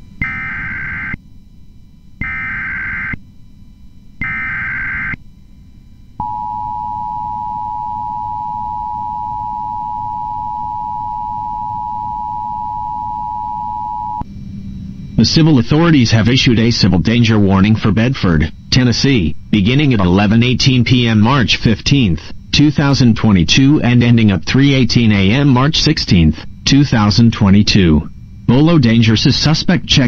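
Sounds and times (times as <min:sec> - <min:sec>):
screeching digital data bursts: 0:00.2 - 0:01.2, 0:02.2 - 0:03.2, 0:04.2 - 0:05.2
two-tone attention signal: 0:06.2 - 0:14.2.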